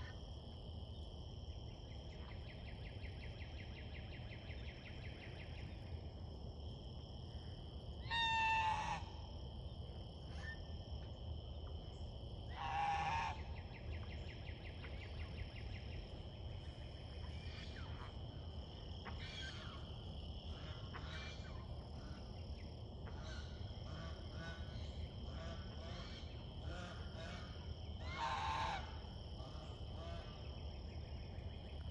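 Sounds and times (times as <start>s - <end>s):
soft chattering goose calls: 12.5s - 14.0s, 20.5s - 30.5s
goose honking: 12.6s - 13.4s, 28.0s - 28.9s.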